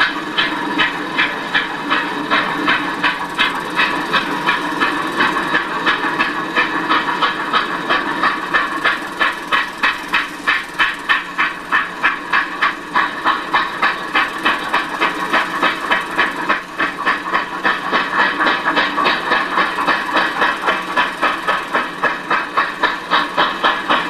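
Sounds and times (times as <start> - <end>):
steam hiss: 0.0 - 24.0
steam locomotive chuffing: 0.0 - 24.0.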